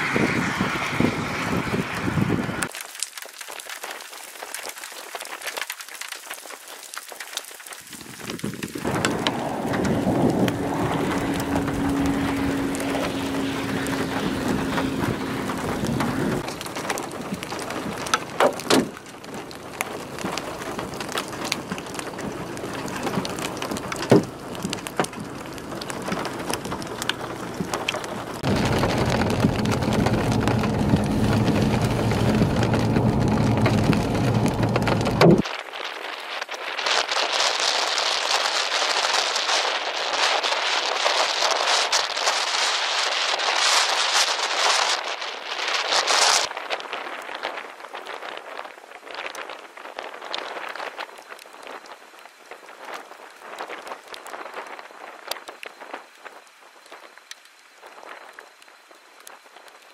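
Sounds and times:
vehicle engine and road drone: 0.0s - 2.7s, 8.8s - 35.4s
heavy rain pouring: 0.0s - 59.9s
thunder cracks: 8.7s - 18.1s, 22.6s - 35.4s.

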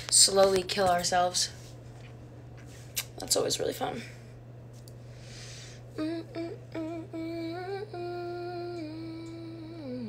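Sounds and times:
short breath: 5.1s - 5.8s
woman humming: 6.0s - 10.0s.

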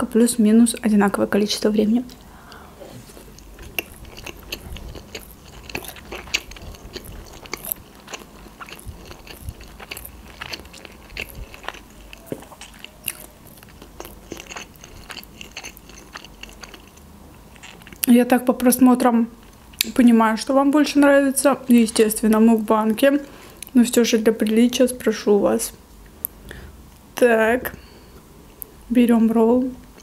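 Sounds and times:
person chewing with mouth closed: 2.1s - 18.1s.

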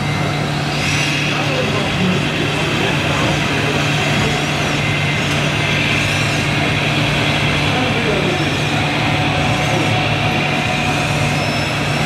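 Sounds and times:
electric motor whine: 0.0s - 12.0s
model truck engine drone: 0.0s - 12.0s.

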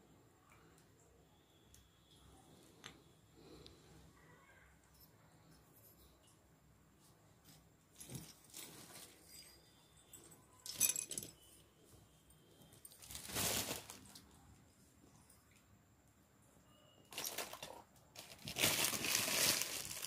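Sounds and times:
rustling handling noise: 6.9s - 11.4s, 12.6s - 14.9s, 17.1s - 20.0s.

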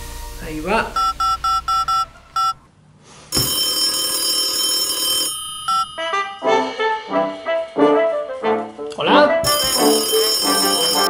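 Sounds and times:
phone keypad beeps: 1.0s - 2.6s, 3.4s - 5.9s, 9.5s - 11.0s
telephone ringing: 1.0s - 2.6s, 3.3s - 6.5s, 9.5s - 11.0s.

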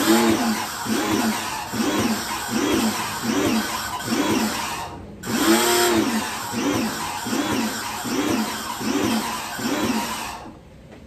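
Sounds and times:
pressure washer motor hum: 0.0s - 10.6s.

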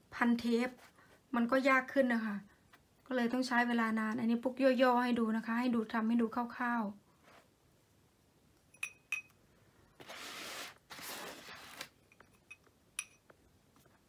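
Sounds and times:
rustling craft materials: 10.0s - 12.5s
hard objects clinking: 12.0s - 13.3s.

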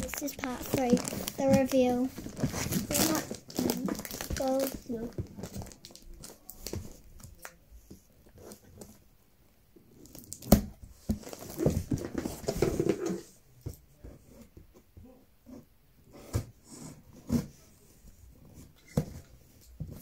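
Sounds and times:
cardboard and packaging rustling: 0.0s - 9.0s, 10.1s - 14.7s.

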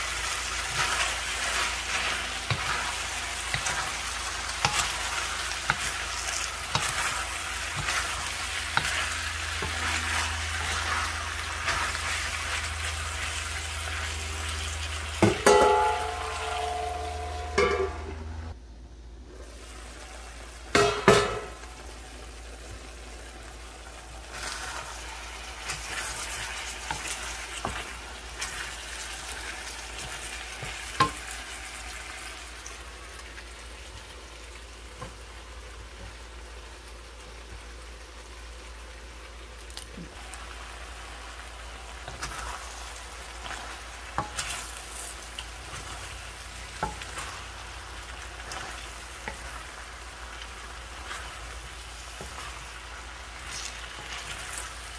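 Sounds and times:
food sizzling in a wok: 0.0s - 54.9s
spatula knocking and scraping pan: 0.5s - 12.2s, 15.2s - 18.2s, 20.7s - 21.6s, 25.6s - 31.4s, 43.4s - 46.1s, 46.7s - 47.5s
loud metal clank: 15.2s - 18.2s.

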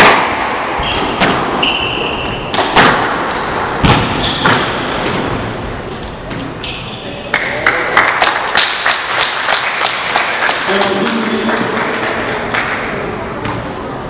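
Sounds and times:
squash ball hitting rackets and walls: 0.0s - 7.0s, 11.8s - 13.8s
shoes squeaking on wooden floor: 0.8s - 2.5s, 4.0s - 7.1s
people clapping: 7.3s - 13.1s.

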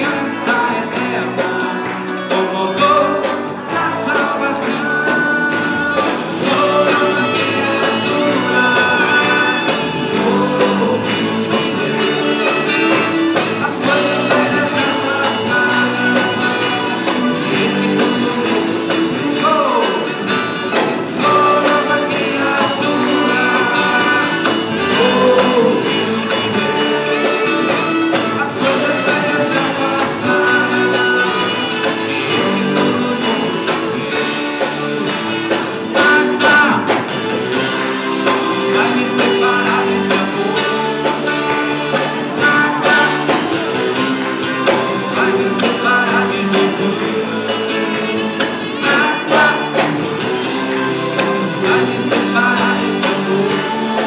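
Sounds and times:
electric guitar: 0.0s - 54.0s
male voices singing: 0.0s - 54.0s.

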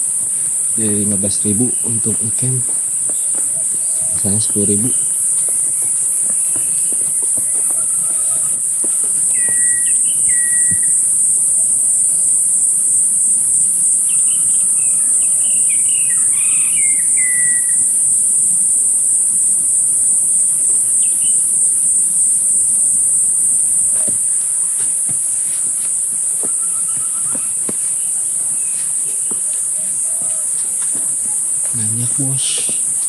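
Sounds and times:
insects droning: 0.0s - 33.0s
bird calls whistling and chirping: 3.1s - 11.8s, 13.9s - 18.1s, 20.9s - 21.4s, 25.4s - 29.7s.

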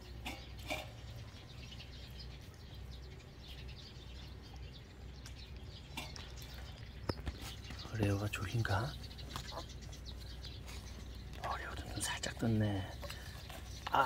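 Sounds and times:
puppies squeaking: 9.0s - 11.1s.

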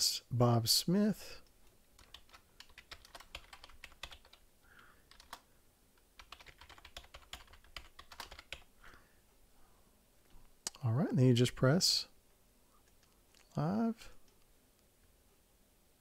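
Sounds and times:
typing on a keyboard: 1.4s - 4.4s, 5.1s - 5.4s, 6.2s - 8.7s.

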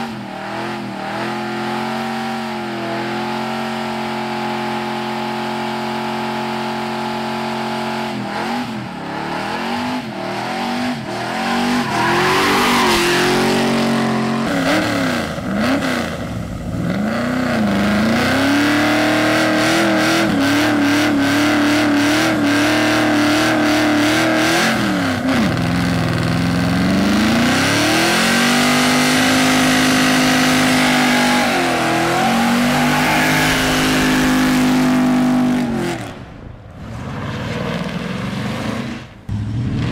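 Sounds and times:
truck engine revving: 0.0s - 39.9s
spinning tires hissing: 8.7s - 19.6s, 28.6s - 35.8s.

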